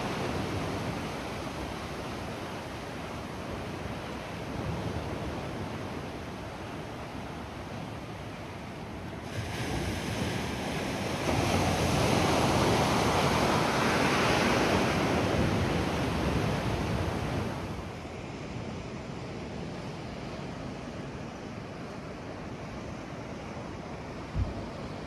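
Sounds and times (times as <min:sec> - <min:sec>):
wave washing over rocks: 0:00.0 - 0:18.0.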